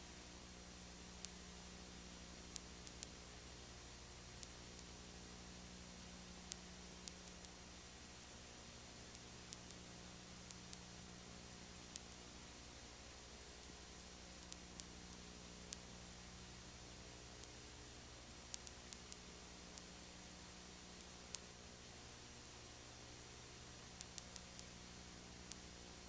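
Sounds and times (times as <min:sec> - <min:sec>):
recording hiss and electrical hum: 0:00.0 - 0:26.0
faint clicks: 0:02.5 - 0:03.2, 0:04.3 - 0:05.0, 0:06.4 - 0:07.6, 0:09.0 - 0:11.0, 0:11.8 - 0:12.3, 0:13.6 - 0:15.9, 0:17.4 - 0:17.6, 0:18.4 - 0:20.0, 0:20.8 - 0:21.5, 0:23.9 - 0:26.0.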